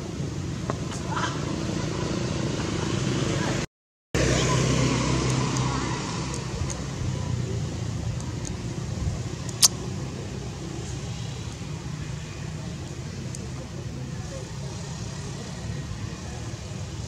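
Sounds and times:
distant motor engine rumble: 4.2s - 17.0s.

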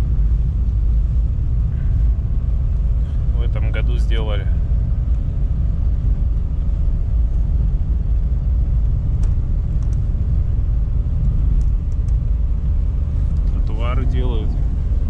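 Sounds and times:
engine and tyres rumbling on snow: 0.0s - 15.0s
faint steady whine: 0.0s - 15.0s
light ticks: 9.2s - 10.1s, 11.2s - 12.2s.

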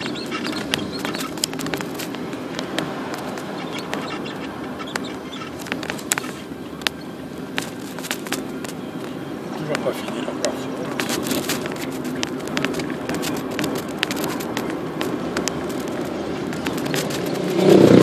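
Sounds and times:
car road and engine noise: 0.0s - 18.0s
sharp clicks: 10.4s - 17.8s.

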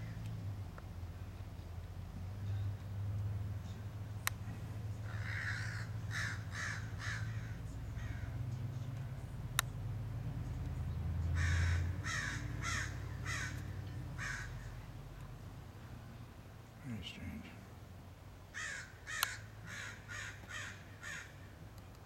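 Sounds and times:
steady low hum: 0.0s - 22.0s
crows cawing: 5.0s - 8.4s, 11.4s - 14.8s, 18.5s - 21.5s.

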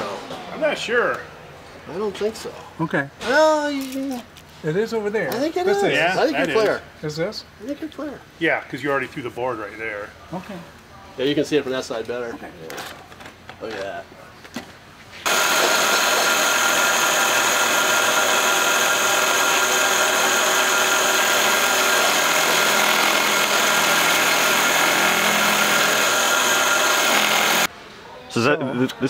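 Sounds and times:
milling machine high whine: 15.3s - 27.7s.

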